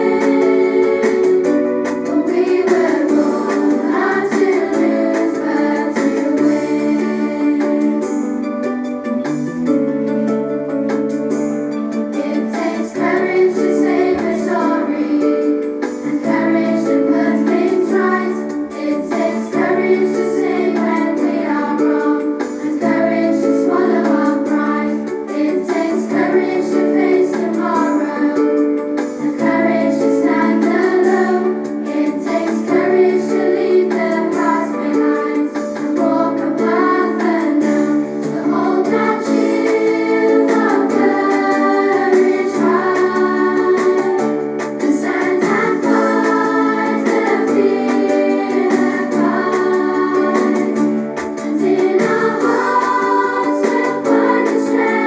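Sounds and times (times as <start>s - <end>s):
voices singing: 0.0s - 8.3s, 29.2s - 55.0s
instrumental accompaniment: 0.0s - 55.0s.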